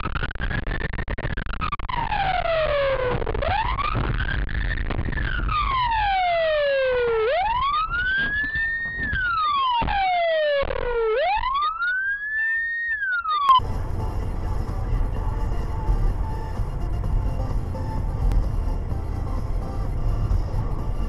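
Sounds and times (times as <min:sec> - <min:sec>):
police siren wailing: 0:01.9 - 0:04.1, 0:05.2 - 0:21.0
road noise: 0:13.5 - 0:21.0.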